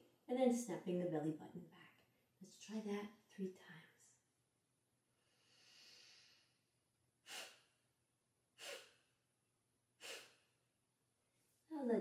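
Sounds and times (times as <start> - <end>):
forceful nasal exhales: 5.2 - 6.6, 7.2 - 7.9, 8.6 - 9.2, 10.0 - 10.6
soft nasal inhale: 5.2 - 7.9, 8.6 - 9.2, 10.0 - 10.6.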